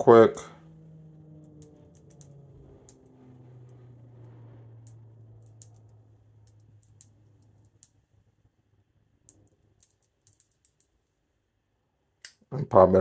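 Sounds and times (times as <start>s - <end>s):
low steady hum: 0.0s - 13.0s
padlock number wheels clicking: 1.4s - 3.1s, 4.8s - 8.0s, 9.2s - 10.9s.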